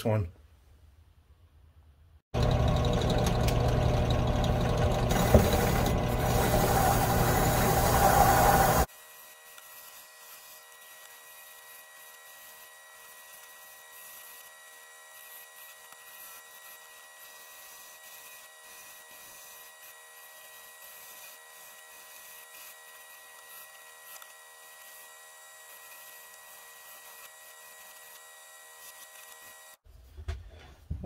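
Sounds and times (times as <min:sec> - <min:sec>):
high whine: 0:03.2 - 0:08.9
wire wheel brush scrubbing metal: 0:05.1 - 0:08.9.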